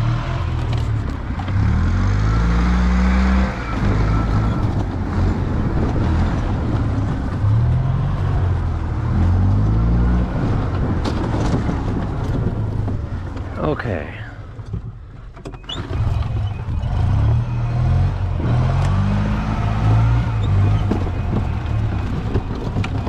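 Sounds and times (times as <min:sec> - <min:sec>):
golf cart engine revving: 0:00.0 - 0:07.8, 0:15.6 - 0:23.0.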